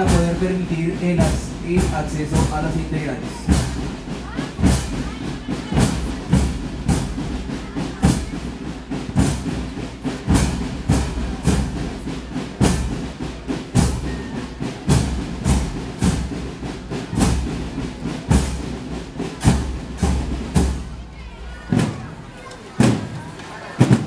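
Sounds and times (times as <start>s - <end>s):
bass drums: 0.0s - 22.2s.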